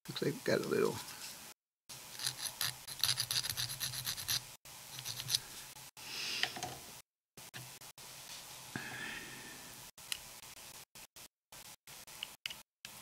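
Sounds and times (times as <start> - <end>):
sanding stick scraping plastic: 2.2 - 5.4.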